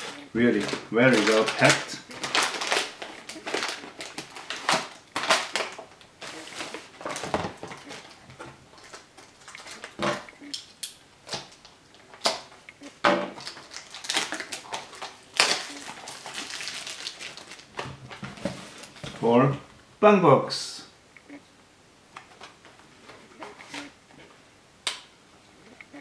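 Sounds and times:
plastic packing wrap crinkling: 0.0s - 12.6s, 13.3s - 19.2s.

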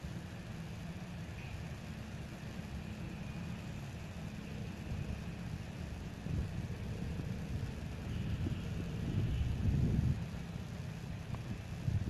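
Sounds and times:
cicada drone: 0.0s - 12.0s
wind buffeting microphone: 4.9s - 12.0s.

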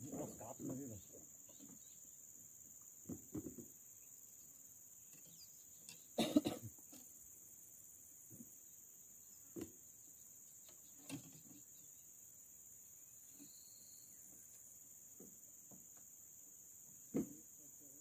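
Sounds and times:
insects chirring: 0.0s - 18.0s
soft knocks: 3.0s - 3.7s.

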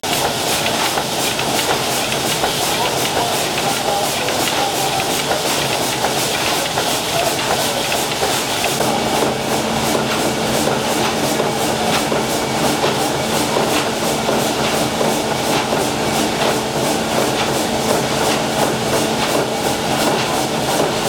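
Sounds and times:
steam engine mechanical clatter: 0.0s - 21.0s
steady hum: 8.6s - 21.0s.

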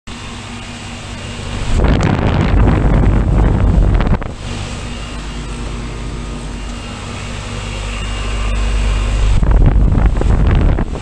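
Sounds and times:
heat pump humming: 0.0s - 11.0s
wind buffeting microphone: 0.8s - 6.0s, 8.5s - 11.0s.

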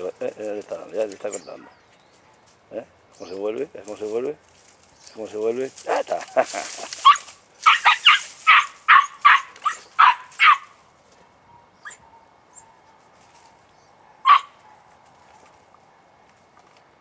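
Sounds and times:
puppy yapping: 7.0s - 10.7s, 14.1s - 14.8s.

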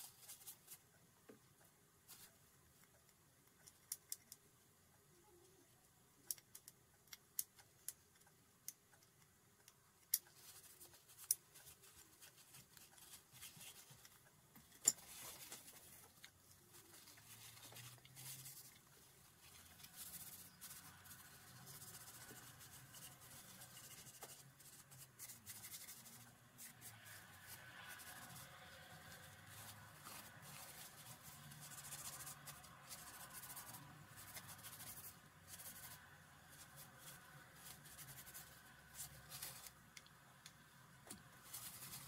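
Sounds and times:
cloth rubbing on metal: 14.9s - 39.8s, 41.4s - 42.0s.

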